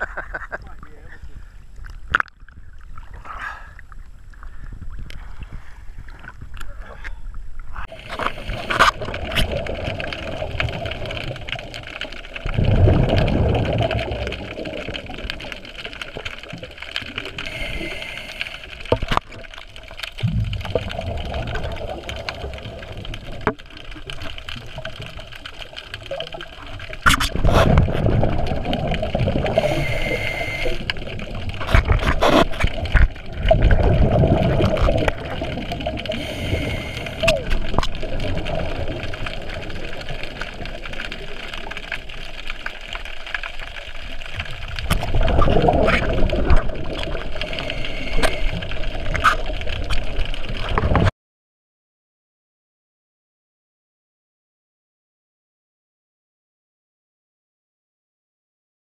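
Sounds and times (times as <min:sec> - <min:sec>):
underwater bubble bursts: 0:07.8 - 0:51.1
regulator hissing inhale: 0:17.4 - 0:19.0, 0:29.5 - 0:30.9, 0:36.1 - 0:37.2, 0:47.4 - 0:48.8.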